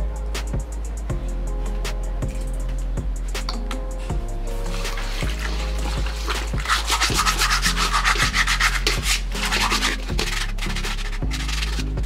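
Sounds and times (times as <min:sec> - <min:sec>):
sponge scrubbing metal in water: 0:04.6 - 0:12.0.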